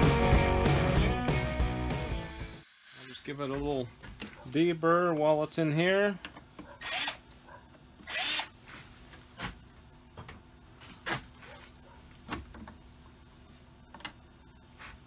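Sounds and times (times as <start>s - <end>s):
deburring tool scraping metal: 6.7s - 7.2s.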